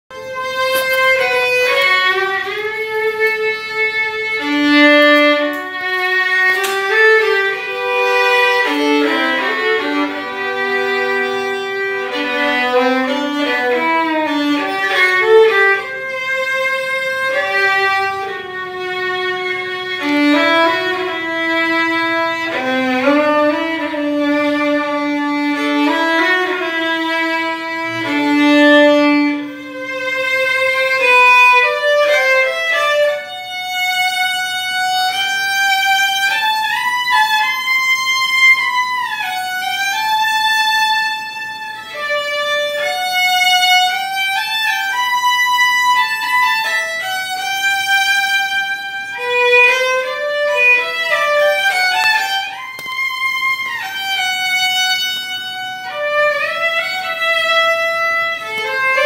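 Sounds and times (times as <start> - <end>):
solo violin melody: 0.1 - 59.0.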